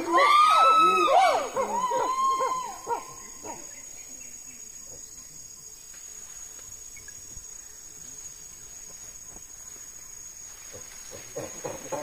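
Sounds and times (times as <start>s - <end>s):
chimpanzees pant-hooting: 10.6s - 12.0s.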